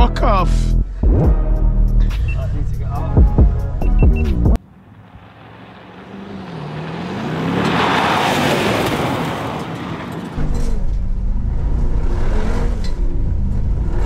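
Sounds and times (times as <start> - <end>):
deep engine rumble: 0.6 - 7.6, 10.4 - 14.0
car engine running: 2.1 - 14.0
driving noise: 2.1 - 14.0.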